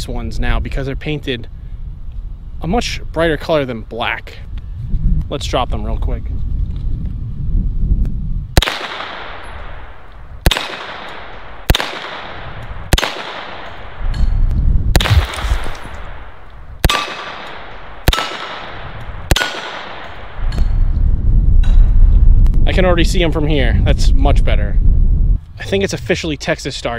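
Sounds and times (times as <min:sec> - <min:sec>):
pistol shots: 0:08.6 - 0:14.2, 0:14.9 - 0:20.5.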